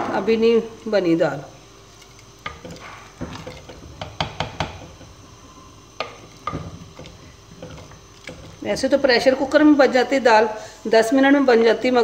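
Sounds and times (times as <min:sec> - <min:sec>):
thick dal being stirred: 0:01.6 - 0:09.5
wooden ladle scraping clay pot: 0:01.9 - 0:08.9.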